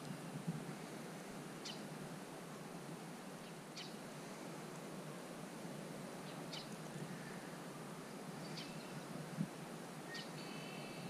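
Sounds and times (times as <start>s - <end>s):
faint outdoor air hiss: 0.0s - 11.0s
birds chirping: 1.6s - 1.9s, 3.4s - 4.0s, 6.2s - 7.6s, 8.4s - 9.1s, 10.1s - 11.0s.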